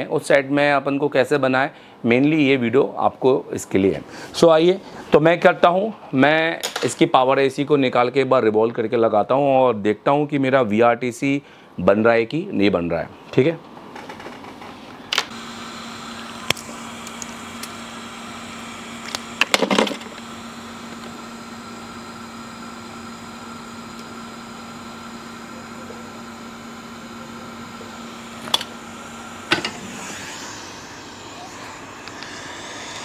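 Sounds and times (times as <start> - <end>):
electrical hum: 0.0 - 33.0
hot air gun blowing: 15.3 - 33.0.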